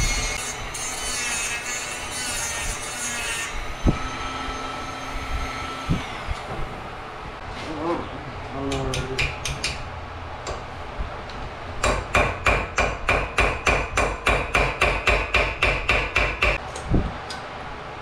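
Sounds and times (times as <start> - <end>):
hammer striking steel: 11.8 - 16.6.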